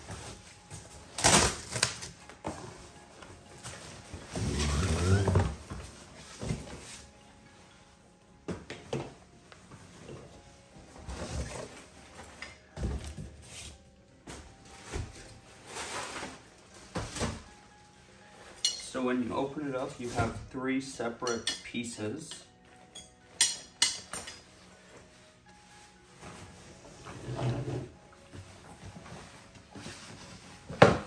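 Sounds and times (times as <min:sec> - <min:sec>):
cardboard and fabric rubbing: 0:03.8 - 0:07.1.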